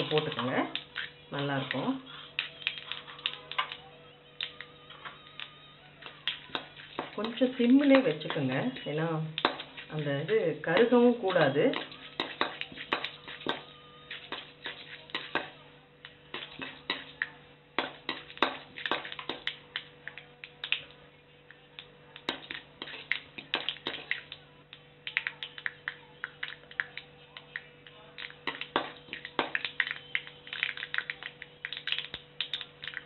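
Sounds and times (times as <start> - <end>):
seeds spluttering in hot oil: 0.0 - 4.7, 5.3 - 21.0, 21.6 - 33.0
faint steady hum: 0.0 - 33.0.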